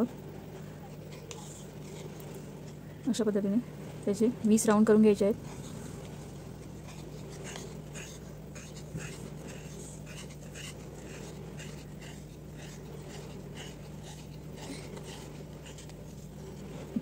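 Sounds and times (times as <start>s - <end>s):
steady low hum: 0.0s - 17.0s
yarn rasping on cardboard: 5.1s - 17.0s.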